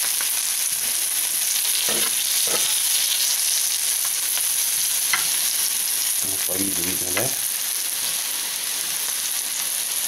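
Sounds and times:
mushrooms sizzling in oil: 0.0 - 10.0
fork scraping a pan: 1.8 - 3.0, 5.1 - 5.5.

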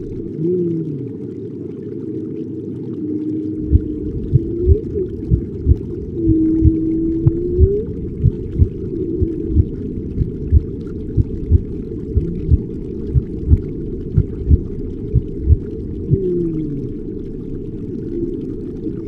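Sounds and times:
whale-like moans: 0.2 - 1.3, 3.0 - 10.5, 11.5 - 13.5, 15.4 - 17.2
heartbeat-like thumping: 3.7 - 5.8, 6.6 - 16.2.

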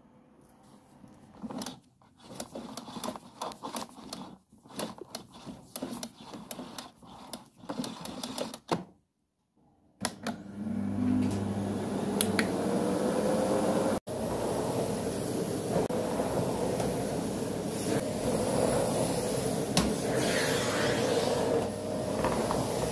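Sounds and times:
vacuum cleaner motor whine: 10.1 - 22.9.

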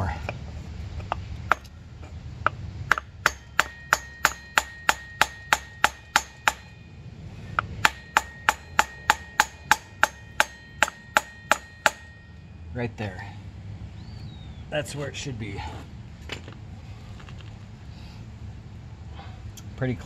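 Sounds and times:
faint metallic ring: 3.3 - 12.8.

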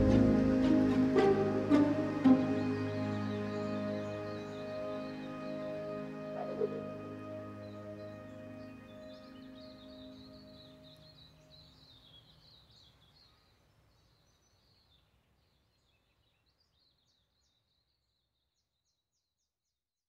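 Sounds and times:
background music: 0.0 - 11.5
birds chirping: 0.0 - 14.9.

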